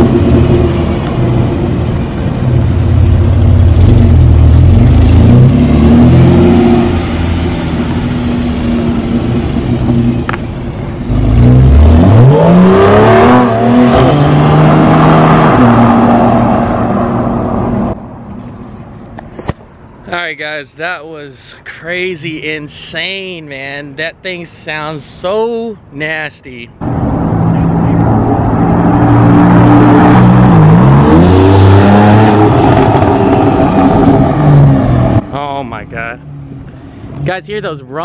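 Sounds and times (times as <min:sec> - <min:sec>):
sports car engine accelerating: 0:00.0 - 0:18.0, 0:26.8 - 0:35.3.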